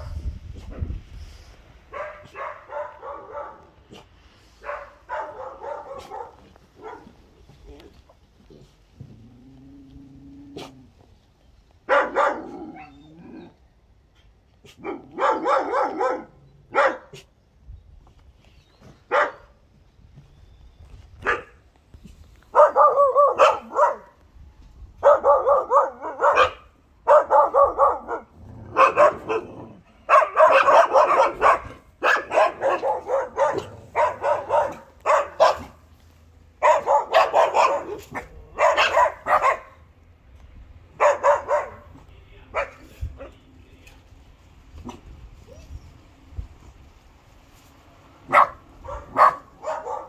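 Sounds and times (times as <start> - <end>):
puppy barking: 1.9 - 7.2, 11.9 - 13.0, 14.6 - 17.3, 19.1 - 19.5, 21.2 - 21.6, 22.5 - 24.2, 25.0 - 35.9, 36.6 - 39.9, 40.9 - 43.4, 48.2 - 50.0.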